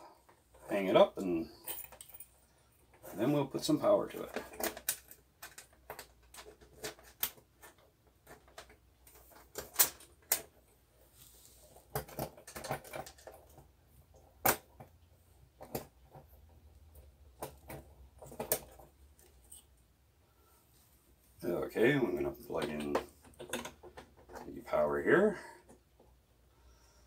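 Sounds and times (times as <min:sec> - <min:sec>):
sharp clicks and knocks: 0:11.9 - 0:19.6, 0:22.5 - 0:24.6.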